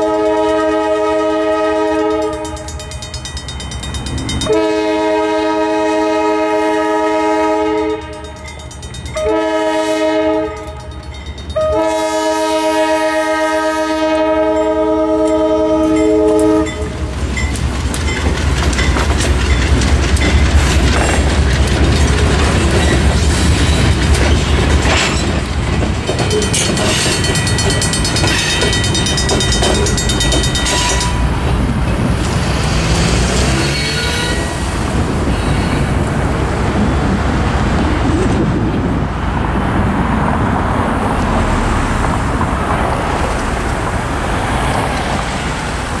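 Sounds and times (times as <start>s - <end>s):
freight train rumbling and clattering: 0.0s - 46.0s
crossing bell ringing rapidly: 2.0s - 5.0s, 7.8s - 9.5s, 10.4s - 11.9s, 14.5s - 31.7s
car engine speeding up: 32.4s - 34.3s.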